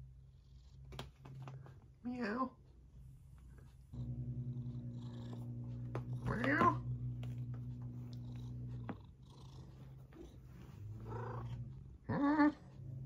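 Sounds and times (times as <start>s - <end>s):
cat purring: 2.9s - 13.0s.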